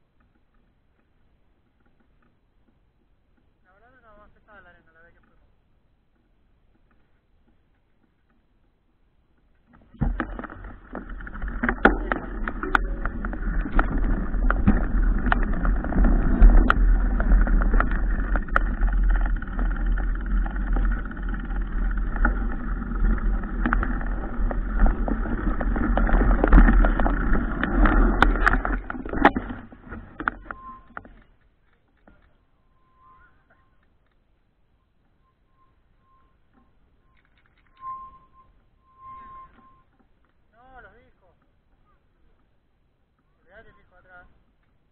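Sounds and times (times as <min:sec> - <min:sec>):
wind: 0:00.0 - 0:44.9
bicycle clicks and rattles: 0:06.1 - 0:32.4
bicycle rolling over dirt: 0:06.2 - 0:42.6.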